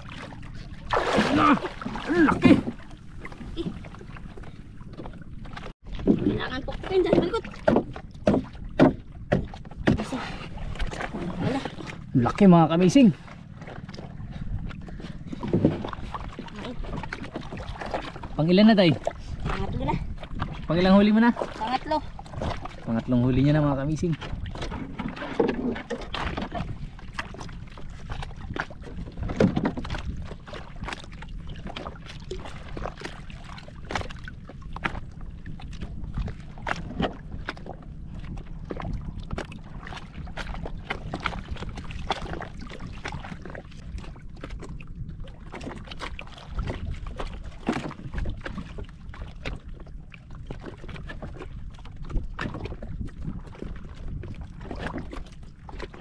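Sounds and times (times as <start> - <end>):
water sloshing against boat: 0.0 - 56.0
light knocks on boat: 7.1 - 10.1.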